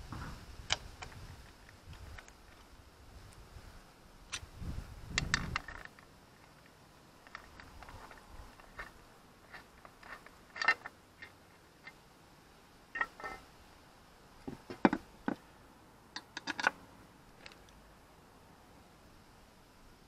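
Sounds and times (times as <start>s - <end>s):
metal parts clicking and clinking: 5.2s - 12.0s, 16.2s - 16.8s.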